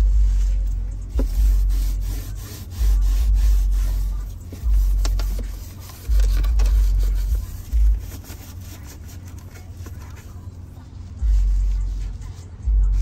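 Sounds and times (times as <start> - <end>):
deep thuds: 0.0 - 1.7
rubbing and rustling: 0.0 - 13.0.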